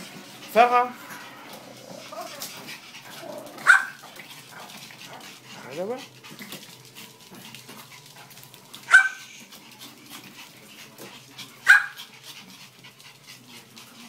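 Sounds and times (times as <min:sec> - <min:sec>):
dog barking: 0:03.6 - 0:04.0, 0:08.9 - 0:09.2, 0:11.6 - 0:12.0.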